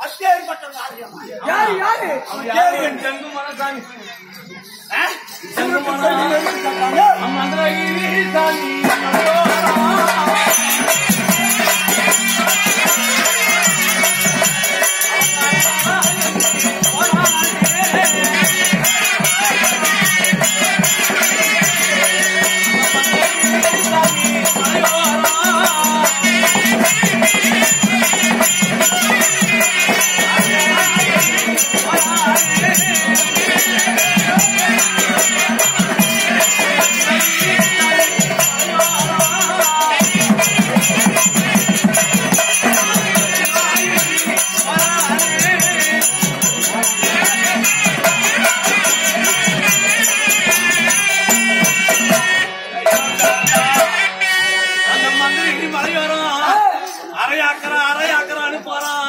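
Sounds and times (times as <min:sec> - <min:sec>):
folk theatre music: 0:04.2 - 0:59.0.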